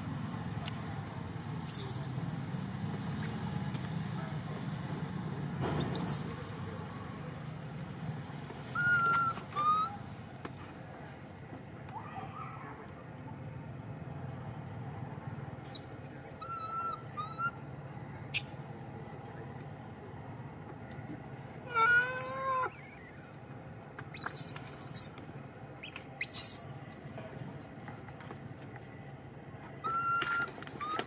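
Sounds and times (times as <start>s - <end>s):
infant monkey crying: 8.8s - 10.0s, 16.2s - 17.6s, 21.6s - 23.4s, 29.8s - 31.0s.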